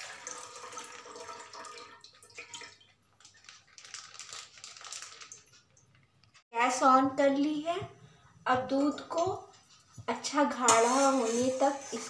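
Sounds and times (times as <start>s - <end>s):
milk pouring into saucepan: 0.0s - 3.4s
plastic packet crinkling: 3.1s - 6.4s.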